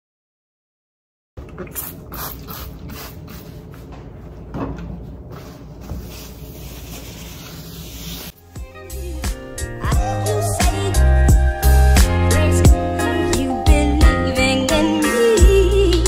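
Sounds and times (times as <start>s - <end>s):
paper towel wiping counter: 5.1s - 8.4s.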